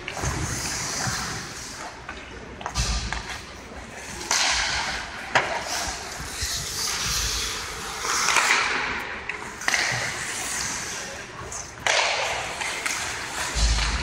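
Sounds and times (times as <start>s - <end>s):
skates scraping on ice: 0.0s - 14.0s
stick hitting puck: 4.2s - 6.0s, 8.0s - 10.9s, 11.6s - 14.0s.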